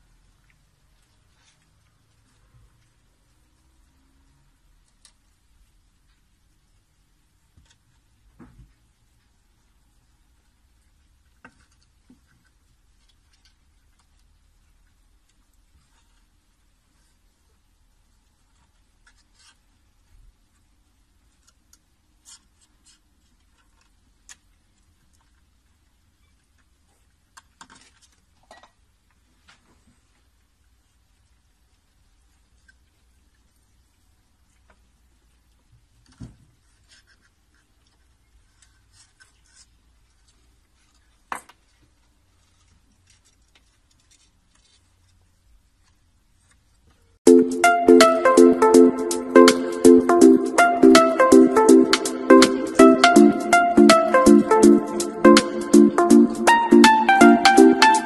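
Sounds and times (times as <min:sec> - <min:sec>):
faint scratches and ticks: 0:04.6 - 0:47.1
small scratching and ticking: 0:32.0 - 0:47.1
music with steady beat: 0:47.2 - 0:58.0.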